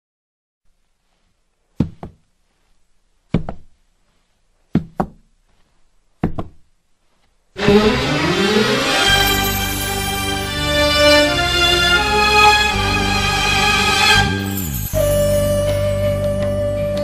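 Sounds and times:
music: 7.6 - 17.0.

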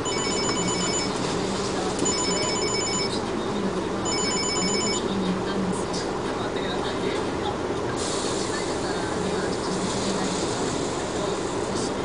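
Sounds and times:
electronic bell-like alarm trilling: 0.0 - 1.1, 2.1 - 3.1, 4.1 - 5.0.

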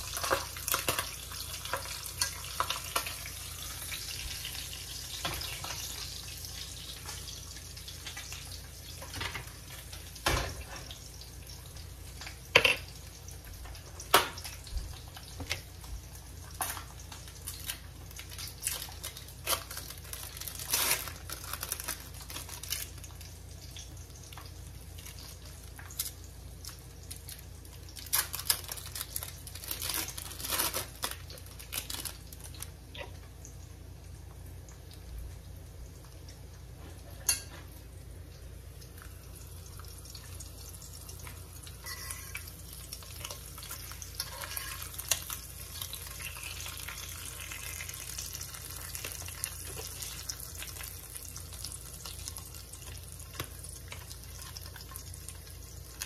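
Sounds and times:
meat sizzling in a pan: 0.0 - 32.7, 38.9 - 56.0
plastic wrap crinkling: 16.6 - 23.4, 24.9 - 32.8
kitchen knocks and clinks: 37.2 - 37.7.

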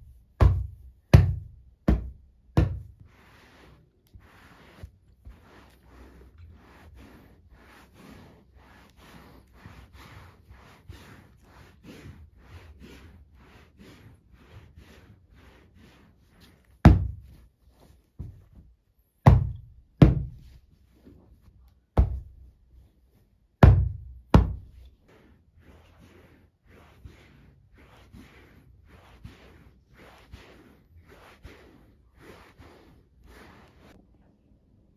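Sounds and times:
hand patting upholstered sofa: 0.0 - 3.6, 16.3 - 21.2, 21.9 - 22.6, 23.6 - 24.9
cloth rubbing on fabric sofa: 0.0 - 34.0.

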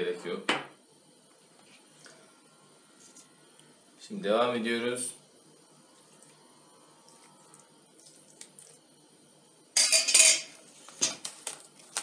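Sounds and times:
ladle clinking on bowl rim: 9.8 - 10.6.

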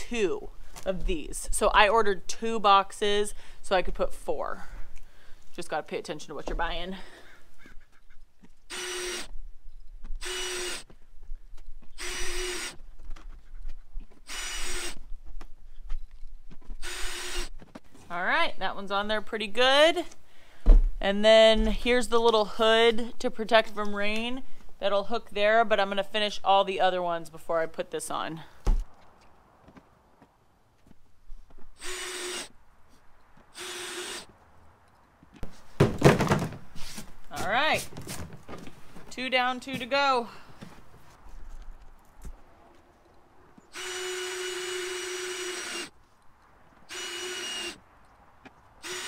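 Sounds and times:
cordless drill driving screws: 8.7 - 9.4, 10.2 - 10.9, 11.9 - 12.8, 14.2 - 15.0, 16.8 - 17.6, 31.8 - 32.6, 33.5 - 34.3, 43.7 - 46.0, 46.8 - 47.8, 48.8 - 49.0.

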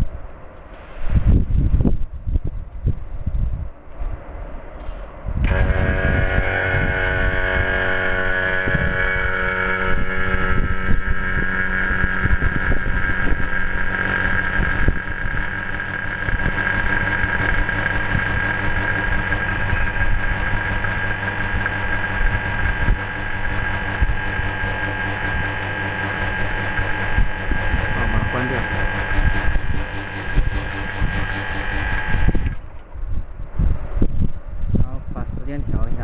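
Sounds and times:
vacuum pump humming: 5.4 - 32.9.

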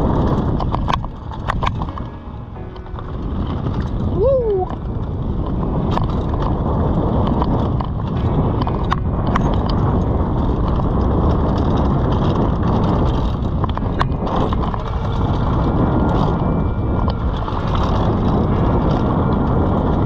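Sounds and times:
bike clicking and rattling: 0.0 - 20.0
bike tyres rumbling on dirt: 0.0 - 20.0.

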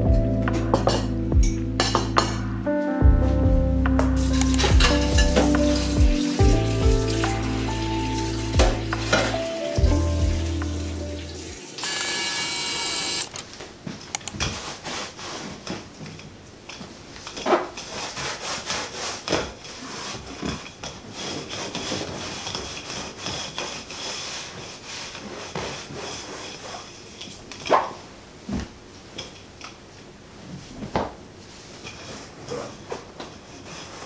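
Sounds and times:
lint roller tape rubbing fabric: 14.5 - 15.7, 17.8 - 27.3.

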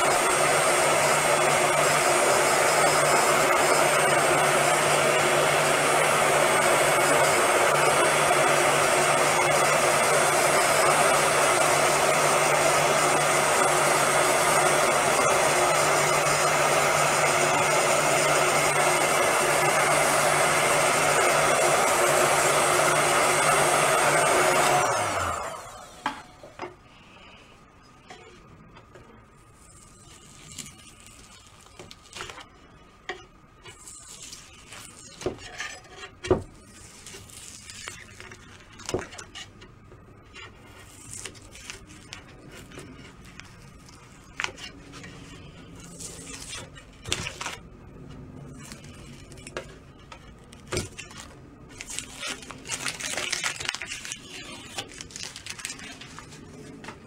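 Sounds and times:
putty knife scraping veneer: 33.6 - 39.6.

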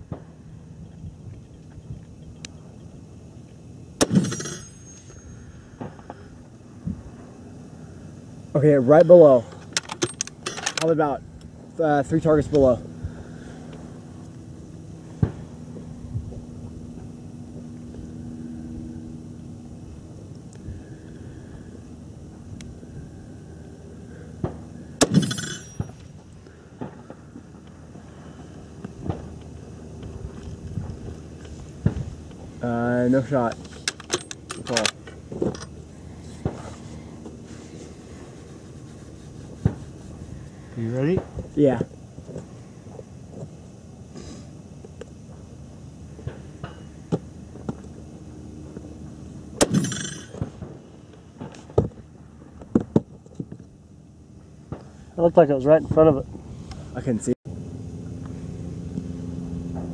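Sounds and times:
rifle bolt metallic clack: 33.6 - 35.7.

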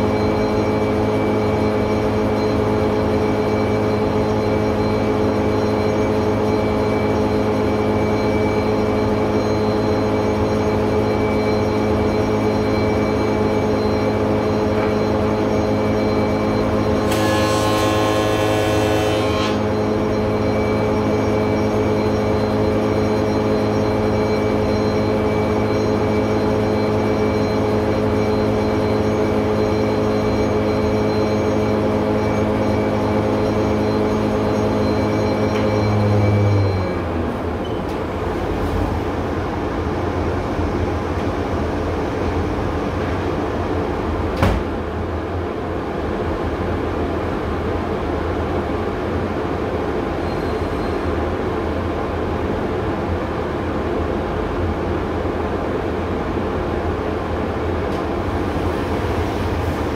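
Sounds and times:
spindle moulder humming and whining: 0.0 - 44.4.

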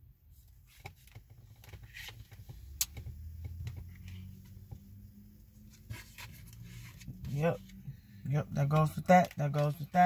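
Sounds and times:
cards being handled and laid down: 8.6 - 9.9.

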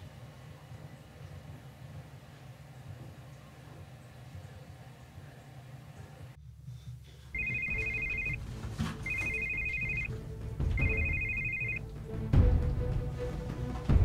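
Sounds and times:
telephone ringing: 7.4 - 10.2, 10.8 - 11.8.

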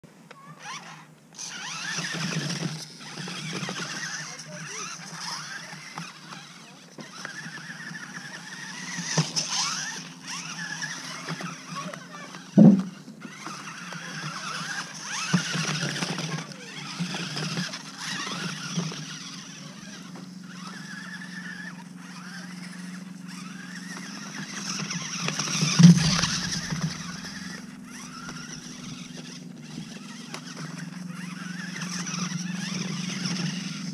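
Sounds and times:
toy car motor whining: 0.3 - 33.9
sharp thump: 12.6 - 12.9.

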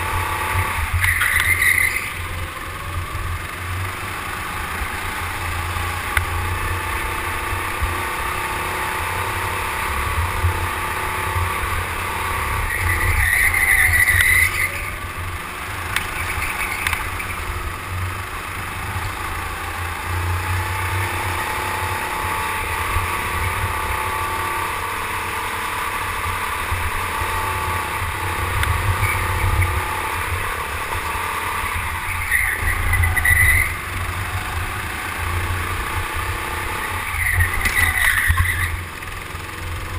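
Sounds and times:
go-kart motor accelerating: 0.0 - 39.9
tyres squealing: 1.0 - 2.4, 31.6 - 34.2.

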